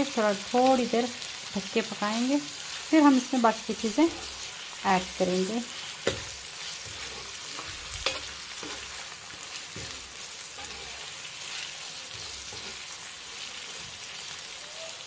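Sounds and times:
chicken sizzling in oil: 0.0s - 15.0s
spatula scraping and knocking pan: 3.7s - 14.1s.

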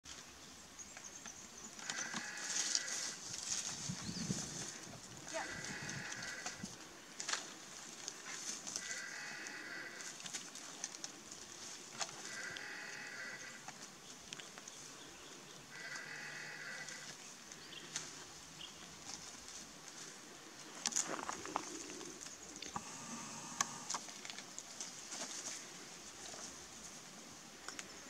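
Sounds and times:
drawn-out animal calls: 1.8s - 6.8s, 8.5s - 10.4s, 12.0s - 13.8s, 15.7s - 17.2s
high-pitched hiss: 22.6s - 24.2s.

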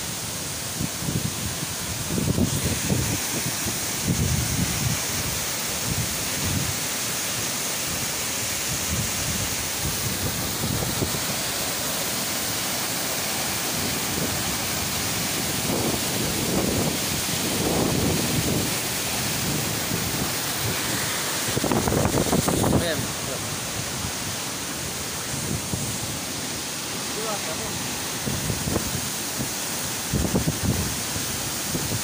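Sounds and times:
waterfall rushing into pool: 0.0s - 32.0s
wind buffeting microphone: 2.0s - 6.7s, 15.5s - 24.2s, 30.1s - 31.0s.

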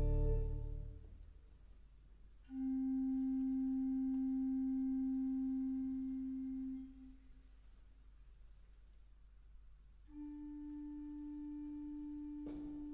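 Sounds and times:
flute-like organ note: 0.0s - 0.9s.

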